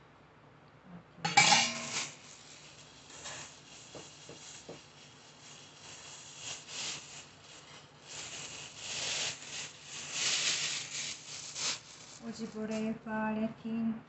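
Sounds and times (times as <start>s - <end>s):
cloth rustling: 1.8s - 12.8s.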